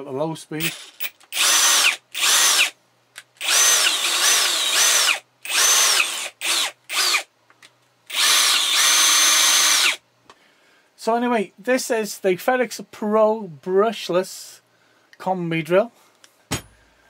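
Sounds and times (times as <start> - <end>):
cordless drill whining: 0.6 - 2.8, 3.4 - 7.3, 8.1 - 10.0.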